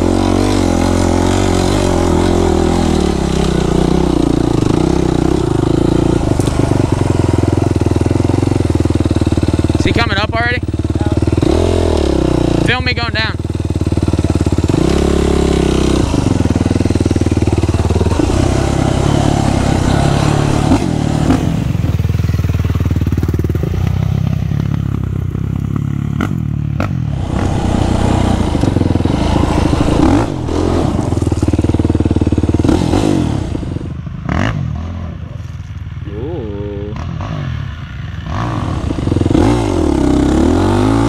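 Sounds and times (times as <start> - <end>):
quad bike engine revving: 0.0 - 35.2, 36.1 - 41.0.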